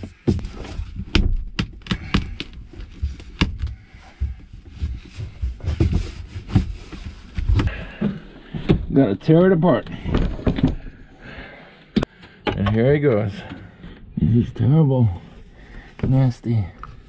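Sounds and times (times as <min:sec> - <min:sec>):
hands knocking and scraping: 0:00.0 - 0:09.0.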